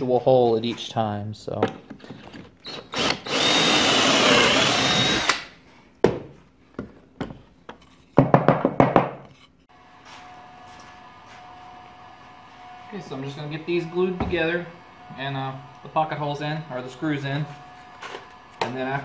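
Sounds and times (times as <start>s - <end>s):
cordless drill whirring: 2.6s - 5.5s.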